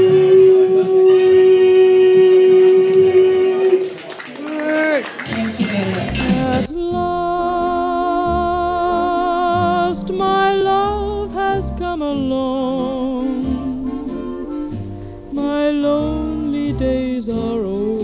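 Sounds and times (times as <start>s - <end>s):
vibrato melody over bass line: 6.4s - 18.0s.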